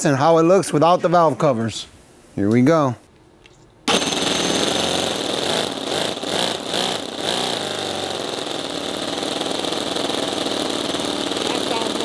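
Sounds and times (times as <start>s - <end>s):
model engine running with open exhaust: 3.9s - 12.0s.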